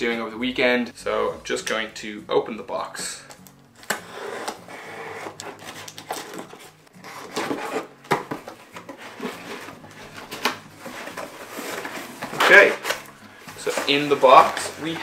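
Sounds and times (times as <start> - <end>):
cardboard flaps rustling: 4.5 - 15.0.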